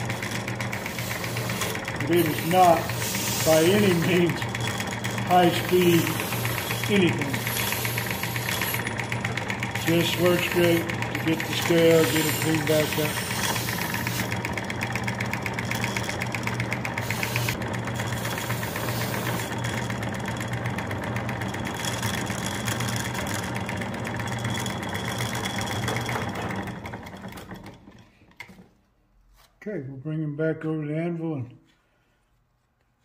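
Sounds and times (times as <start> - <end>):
wire brush scratching steel: 0.0 - 9.0, 9.8 - 14.4, 17.0 - 19.6
grinder motor humming: 0.0 - 28.0.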